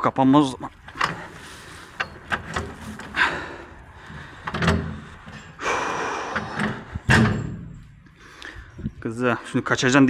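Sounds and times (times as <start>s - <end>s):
sharp knocks and thuds: 6.6s - 8.0s.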